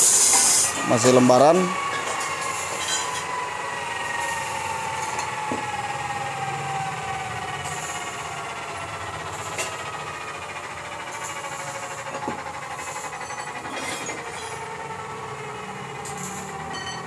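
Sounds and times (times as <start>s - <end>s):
machine whine falling in pitch: 0.0s - 17.0s
workshop hum: 0.0s - 17.0s.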